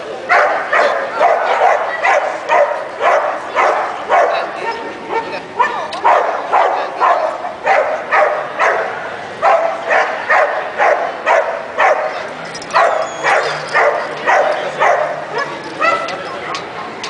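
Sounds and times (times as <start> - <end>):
dog barking: 0.3 - 4.5, 5.1 - 16.1.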